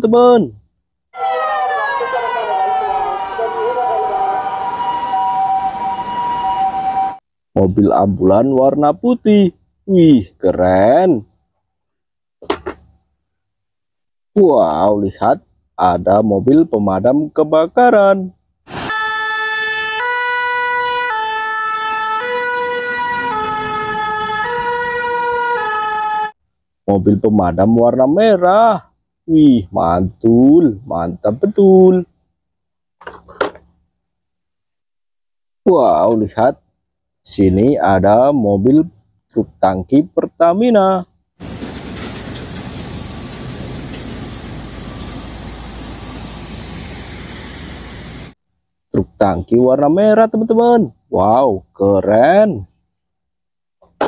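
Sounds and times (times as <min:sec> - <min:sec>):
two-tone fire engine siren: 0:01.2 - 0:07.2, 0:18.7 - 0:26.4, 0:41.4 - 0:48.4
tanker truck and traffic rumble: 0:18.8 - 0:26.1, 0:41.4 - 0:48.4.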